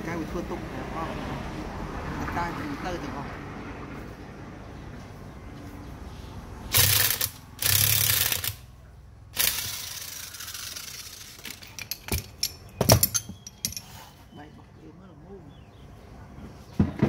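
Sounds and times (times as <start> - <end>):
loud rattling bursts: 6.7 - 8.6, 9.3 - 13.2.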